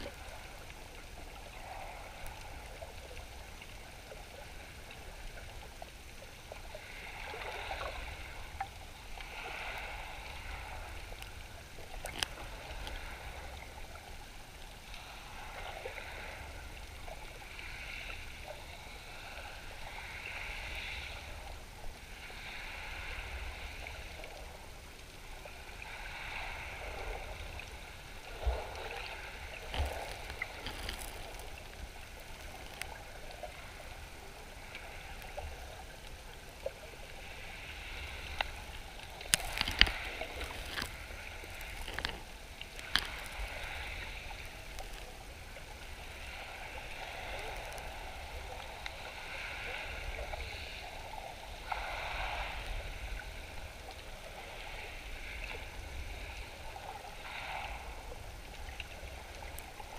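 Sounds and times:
muffled underwater wash: 0.0s - 59.9s
sharp clicks and pops: 29.7s - 31.6s, 39.2s - 43.5s, 44.7s - 45.1s.

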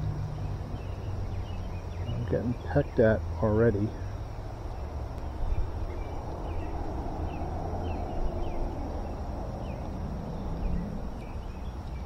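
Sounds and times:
steady low rumble with hiss: 0.0s - 12.0s.

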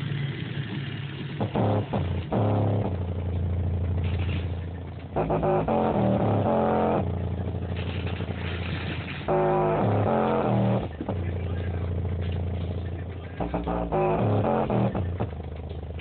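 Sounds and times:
subwoofer playing bass-heavy music: 1.2s - 16.0s.

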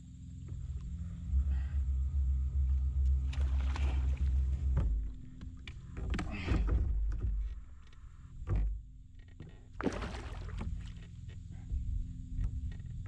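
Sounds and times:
steady low rumble: 0.0s - 13.0s
water splashing: 3.3s - 4.8s, 9.8s - 11.0s.

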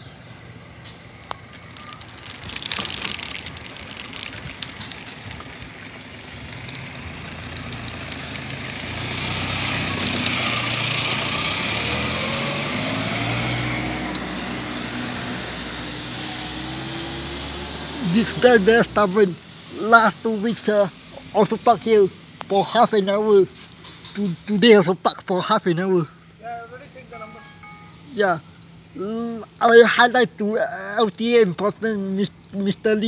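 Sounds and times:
vehicle engine running: 0.0s - 15.9s.

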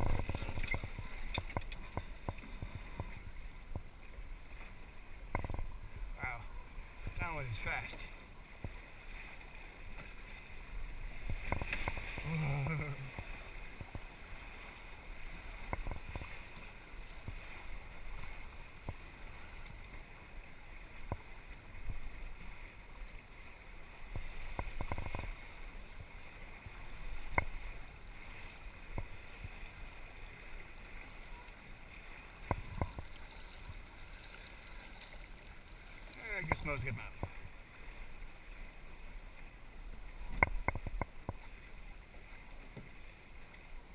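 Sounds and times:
wind noise on microphone: 0.0s - 3.1s
water lapping along a hull: 0.0s - 43.9s.

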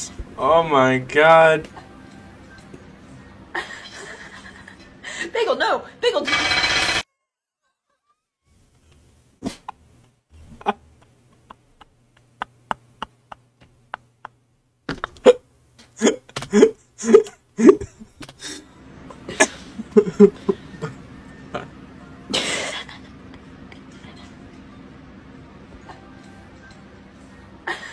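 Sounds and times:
steady low hum: 0.0s - 7.0s, 8.6s - 27.9s
man laughing breathlessly: 10.4s - 13.4s, 16.0s - 21.7s, 22.3s - 24.0s.

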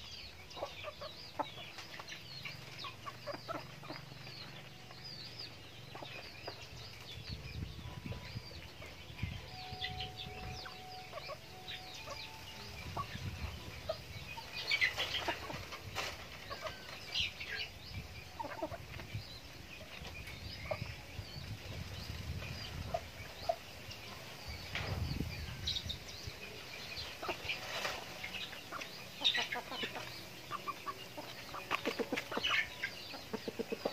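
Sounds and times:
chickens clucking: 0.0s - 33.9s
high chirps: 7.5s - 15.3s.

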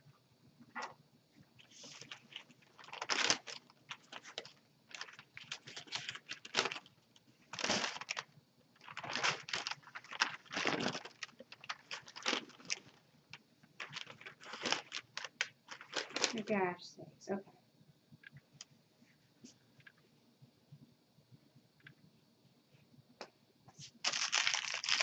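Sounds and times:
paper wrapper crinkling: 1.6s - 13.0s, 13.8s - 16.6s, 23.9s - 25.0s.

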